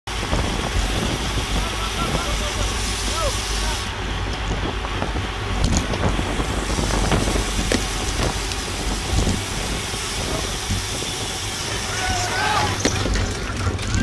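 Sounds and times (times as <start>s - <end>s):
tyre and road noise: 0.1s - 14.0s
wind buffeting microphone: 0.1s - 14.0s
bike knocks and clicks: 4.3s - 11.8s, 12.4s - 14.0s.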